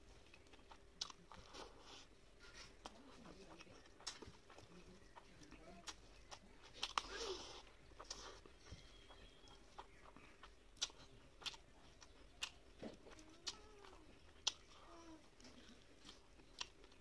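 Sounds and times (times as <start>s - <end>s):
wet eating clicks and smacks: 0.1s - 1.8s, 2.5s - 17.0s.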